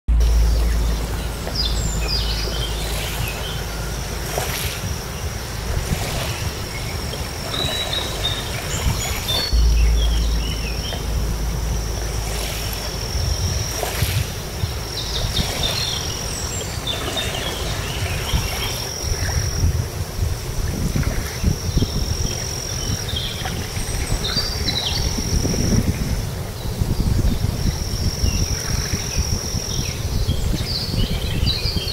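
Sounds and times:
birds chirping: 0:00.1 - 0:19.7
wind rumbling on microphone: 0:00.1 - 0:31.9
waves lapping on pebble shore: 0:00.3 - 0:09.6, 0:12.2 - 0:21.7
thin high tone: 0:09.5 - 0:15.2.

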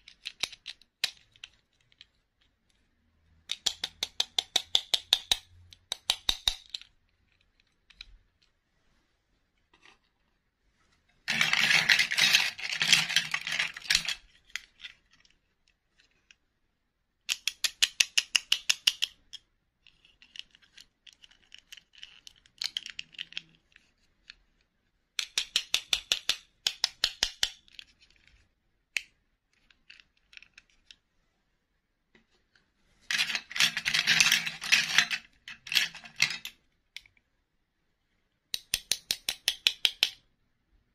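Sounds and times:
plastic rubbing and scratching: 0:07.1 - 0:16.3.

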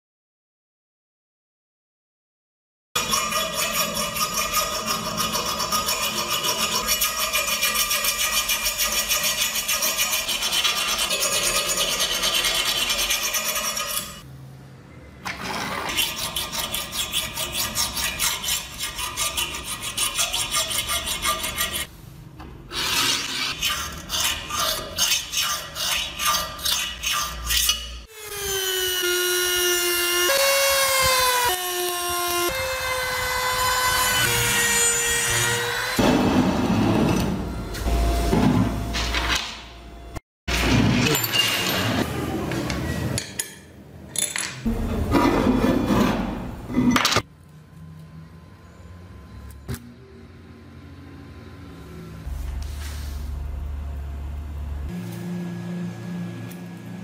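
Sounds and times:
hand file rasping on metal: 0:03.0 - 0:14.2, 0:15.9 - 0:21.9, 0:22.7 - 0:28.1
rotary tool grinding metal: 0:03.0 - 0:14.2, 0:15.7 - 0:21.9, 0:22.7 - 0:36.0.

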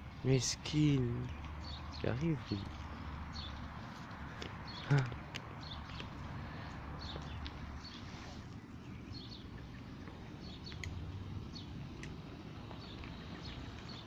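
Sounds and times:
small birds chirping: 0:00.0 - 0:14.0
sharp clicks: 0:10.6 - 0:11.0.

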